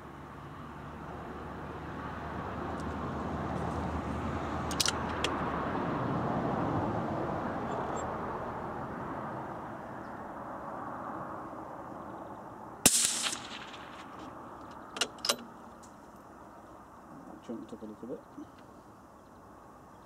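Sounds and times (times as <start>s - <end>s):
passing road traffic: 0.0s - 20.0s
rifle shot with echo: 12.8s - 14.2s.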